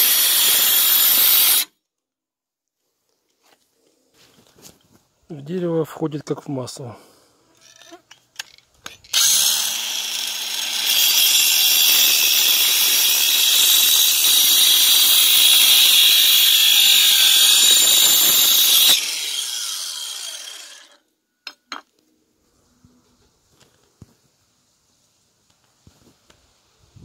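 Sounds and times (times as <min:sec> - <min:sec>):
angle grinder cutting wood: 0:00.0 - 0:01.7, 0:09.1 - 0:21.0.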